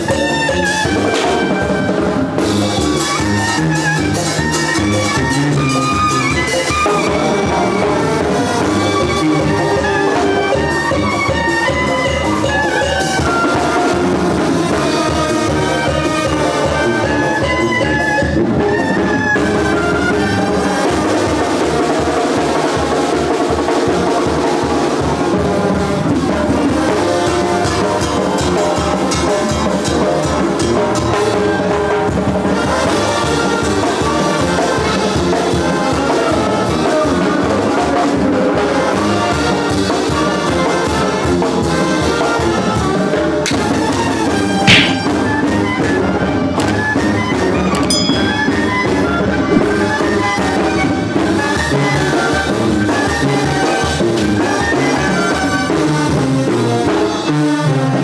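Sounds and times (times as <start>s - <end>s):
trumpets and trombones: 0.0s - 46.9s
steady drumming: 44.6s - 45.6s.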